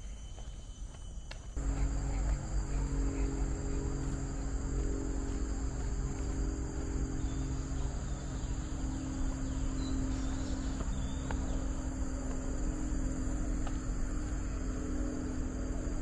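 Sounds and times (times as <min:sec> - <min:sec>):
insects droning: 0:00.0 - 0:16.0
low rumble: 0:01.6 - 0:16.0
faint bird chirps: 0:06.8 - 0:11.7.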